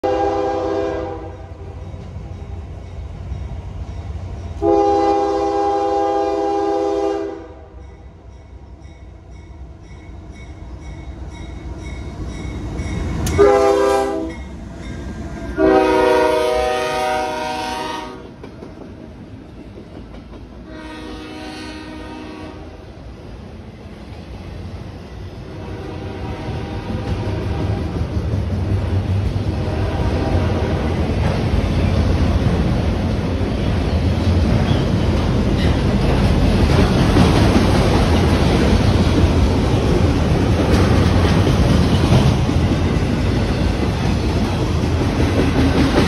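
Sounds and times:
locomotive air horn blasts: 0:00.0 - 0:01.6, 0:04.6 - 0:07.8, 0:13.4 - 0:14.4, 0:15.6 - 0:18.3, 0:20.7 - 0:22.8, 0:25.5 - 0:27.1, 0:29.5 - 0:30.6
freight train rumble: 0:00.0 - 0:46.0.

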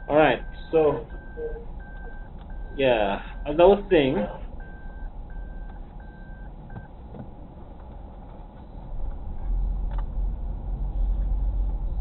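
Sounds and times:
seatbelt reminder beeps: 0:00.0 - 0:02.8, 0:04.2 - 0:06.9
car engine and tyres rumbling: 0:00.0 - 0:12.0.

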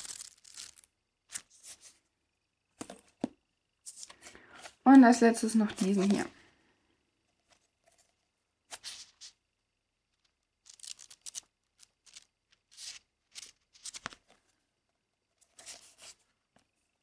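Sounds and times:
paper pages rustling and flicking: 0:00.0 - 0:02.0, 0:05.7 - 0:06.3, 0:07.4 - 0:09.4, 0:10.2 - 0:14.5, 0:15.4 - 0:16.3.

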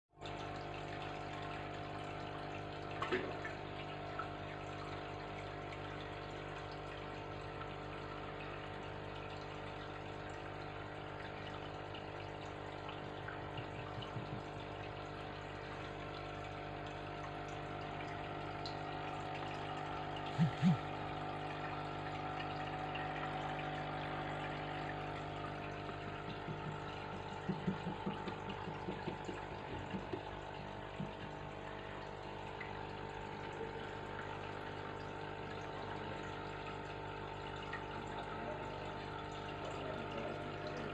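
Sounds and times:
filter pump humming: 0:00.2 - 0:40.9
water trickling: 0:00.2 - 0:40.9
small taps: 0:25.9 - 0:30.3.

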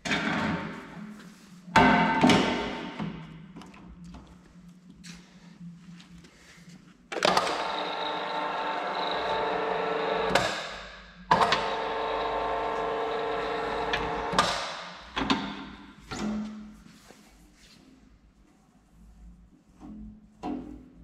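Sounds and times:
pipe expander machine hum: 0:07.4 - 0:10.6, 0:11.3 - 0:14.5.

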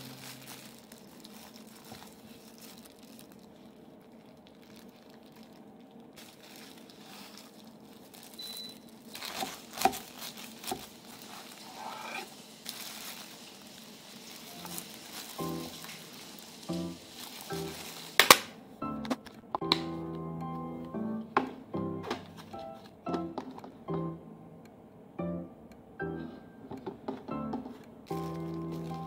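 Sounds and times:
cling film crinkling: 0:00.0 - 0:19.5, 0:28.1 - 0:29.0.

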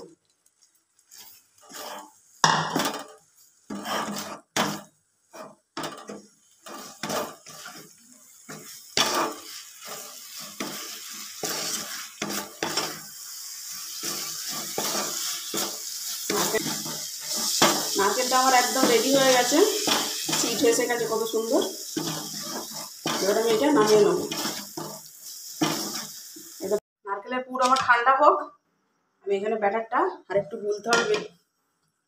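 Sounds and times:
wooden spatula scraping a pan: 0:00.5 - 0:26.8
steady hiss: 0:03.1 - 0:26.8.

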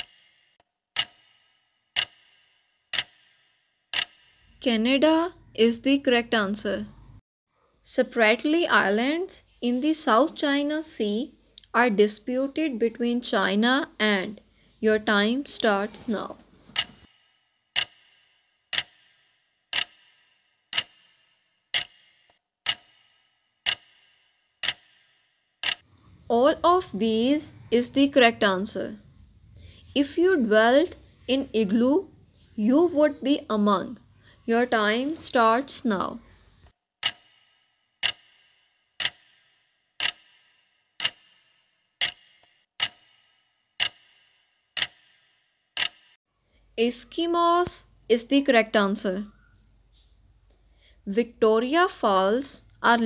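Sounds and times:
clock ticking: 0:00.0 - 0:06.2, 0:15.3 - 0:25.9, 0:33.1 - 0:46.2.

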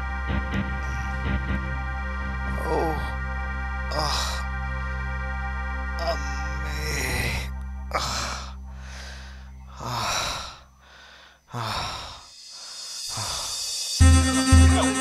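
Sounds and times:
low music drone: 0:00.0 - 0:11.2, 0:14.0 - 0:15.0
man gasping for breath: 0:08.0 - 0:13.9.

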